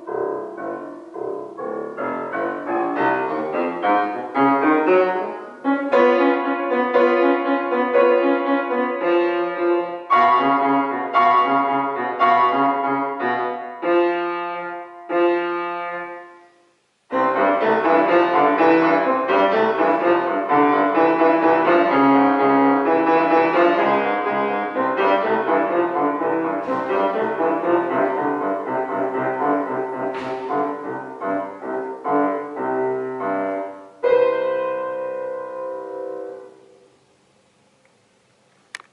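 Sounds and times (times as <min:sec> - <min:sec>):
grand piano playing: 0:00.0 - 0:37.0.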